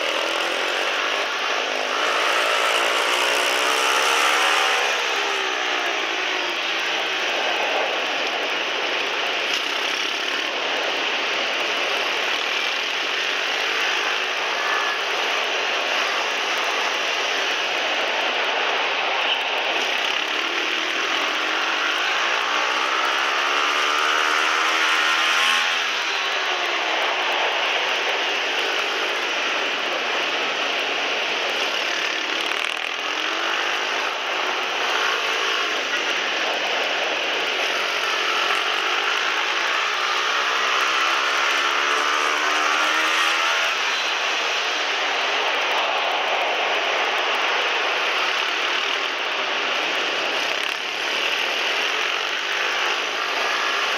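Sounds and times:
pit bike engine running: 0.0s - 18.4s
motorbike engine running hard: 0.0s - 53.9s.

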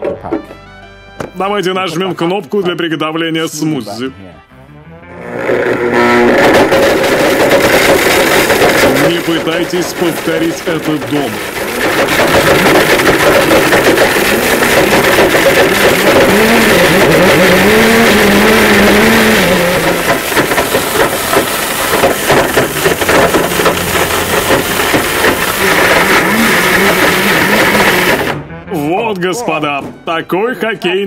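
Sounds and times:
blender motor running: 5.0s - 28.4s
pucks clattering and grinding: 5.2s - 28.4s.

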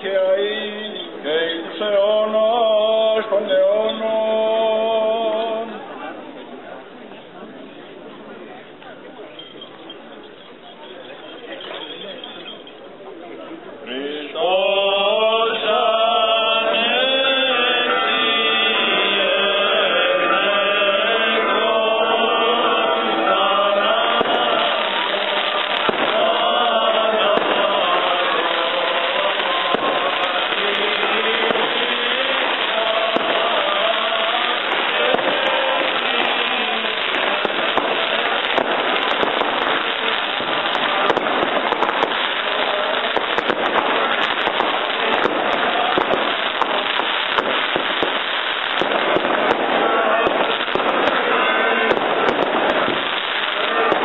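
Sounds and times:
firecrackers crackling: 0.0s - 54.0s
men chanting in unison: 13.9s - 54.0s.

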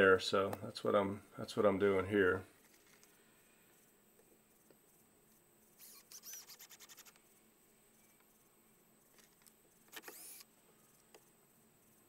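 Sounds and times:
power drill driving screws: 5.8s - 7.1s, 9.9s - 10.4s.

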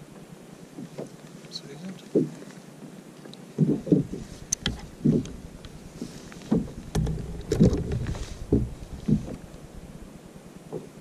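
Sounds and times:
dull thumps on plastic kayak: 3.6s - 9.5s
light clicks: 4.5s - 8.2s.

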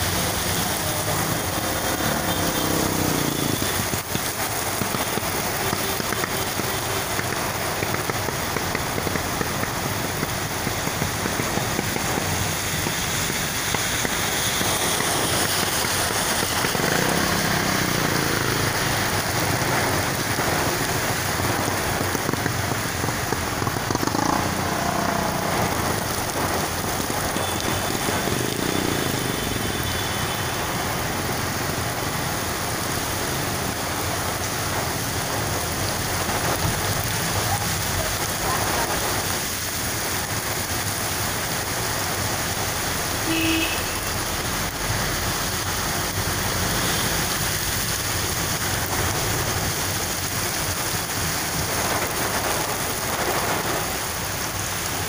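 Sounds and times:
heavy rain pouring: 0.0s - 55.0s
traffic hiss on wet road: 0.0s - 55.0s.

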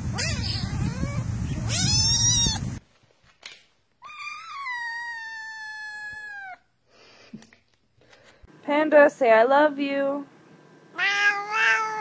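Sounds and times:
kitten meowing: 0.1s - 2.6s, 4.0s - 6.6s, 11.0s - 12.0s
cat long drawn-out meow: 11.0s - 12.0s.

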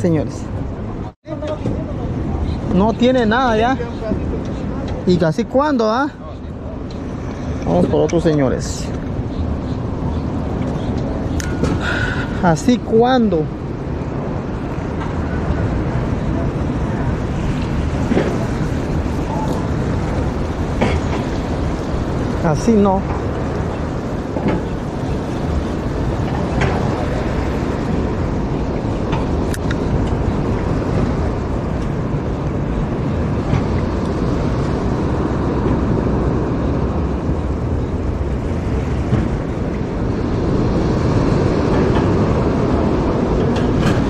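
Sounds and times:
ocean wash: 0.0s - 44.0s
wind buffeting microphone: 0.0s - 44.0s.

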